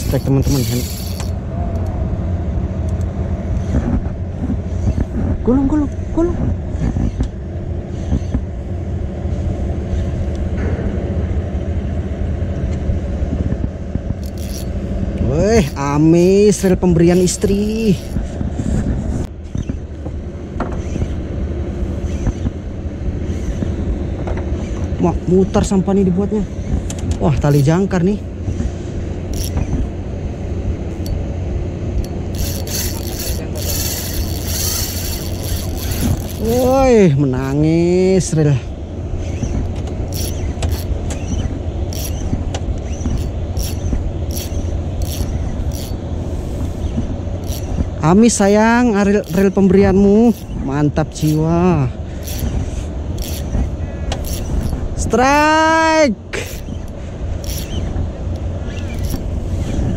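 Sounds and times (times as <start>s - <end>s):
fishing reel drag squealing: 0.0s - 1.8s, 14.2s - 18.2s, 21.9s - 22.5s, 23.2s - 23.6s, 27.5s - 27.9s, 29.3s - 29.8s, 32.0s - 37.1s, 39.2s - 55.2s, 56.4s - 59.9s
boat engine running: 0.0s - 10.5s, 13.0s - 55.5s, 56.2s - 59.9s
wind rumbling on microphone: 0.0s - 31.3s, 56.5s - 59.9s.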